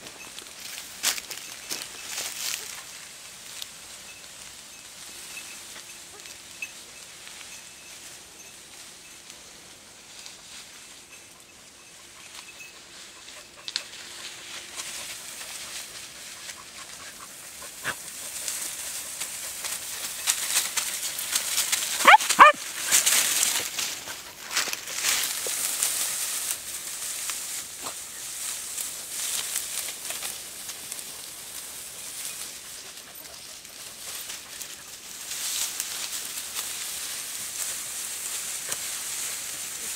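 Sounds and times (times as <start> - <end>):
dry grass rustling: 0.0 - 39.9
dog yelping: 22.0 - 23.0.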